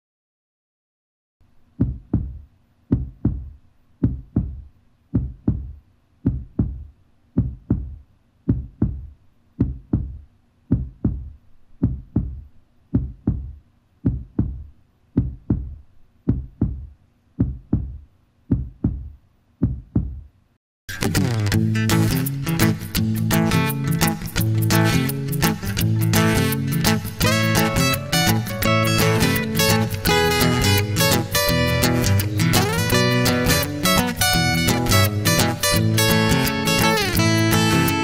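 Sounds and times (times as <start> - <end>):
heartbeat thumps: 1.7 - 20.3.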